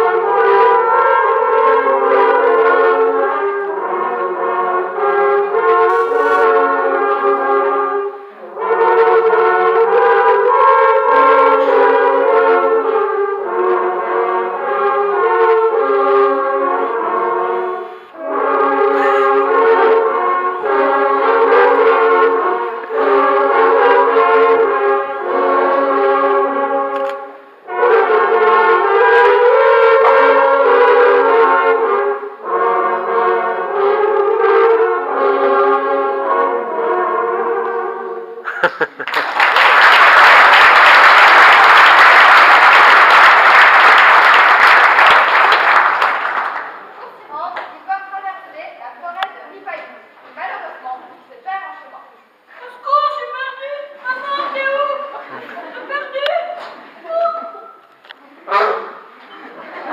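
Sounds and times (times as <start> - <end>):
garden hose horns playing a tune: 0.0 - 38.5.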